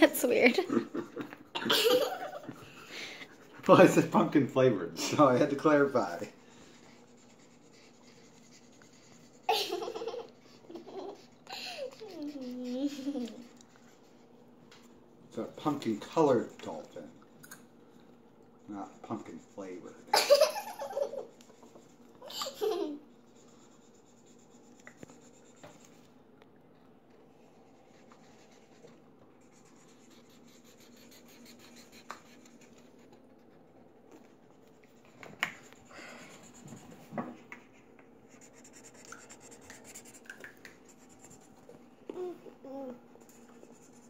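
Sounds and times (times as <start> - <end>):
laughter: 0.5 - 2.7, 9.5 - 11.1, 20.1 - 21.3
markers scratching on paper: 3.2 - 14.3, 15.4 - 17.4, 18.6 - 26.0, 27.4 - 33.8, 34.5 - 41.8, 43.2 - 44.0.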